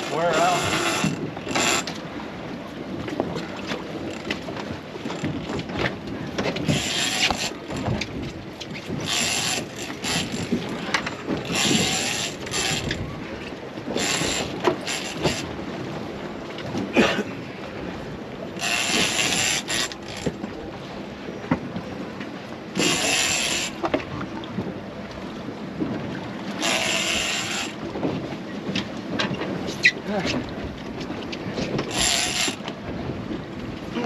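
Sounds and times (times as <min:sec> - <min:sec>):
wind on microphone: 0:00.0 - 0:22.2
fishing reel clicking: 0:18.6 - 0:20.2, 0:22.8 - 0:23.8, 0:31.9 - 0:32.6.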